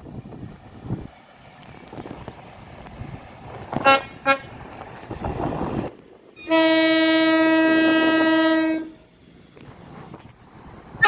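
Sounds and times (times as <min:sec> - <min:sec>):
train horn blasts: 0:03.8 - 0:04.5, 0:06.4 - 0:09.0.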